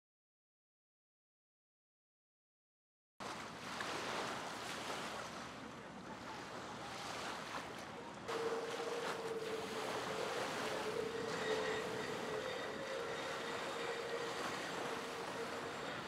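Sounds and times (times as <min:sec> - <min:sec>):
choppy water: 0:03.2 - 0:16.0
wind on microphone: 0:08.3 - 0:16.0.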